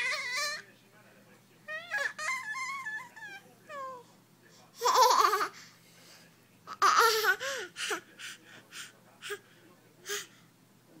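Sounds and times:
toddler laughing: 4.8 - 5.6.

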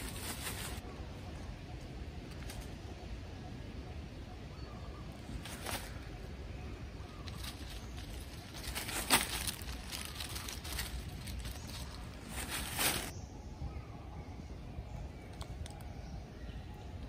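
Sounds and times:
hand scratching in dry leaves: 0.0 - 0.8, 7.2 - 13.1
sharp crackles: 7.2 - 13.1.

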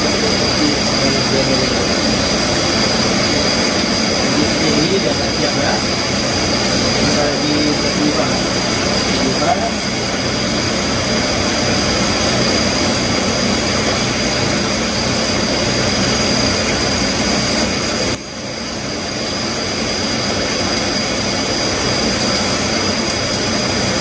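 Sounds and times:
high machining whine: 0.0 - 24.0
milling machine cutting metal: 0.0 - 24.0.

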